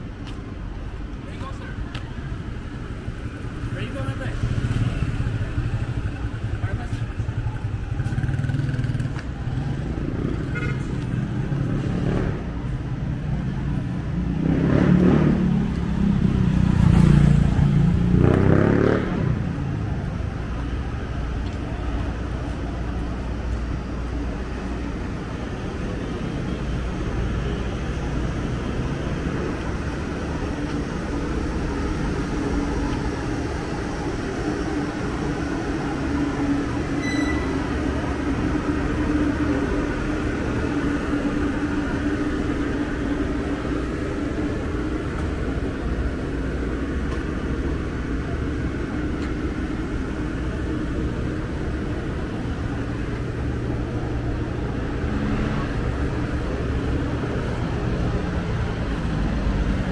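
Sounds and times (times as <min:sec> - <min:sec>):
city traffic hum: 0:00.0 - 0:59.9
vehicles passing close: 0:00.0 - 0:59.9.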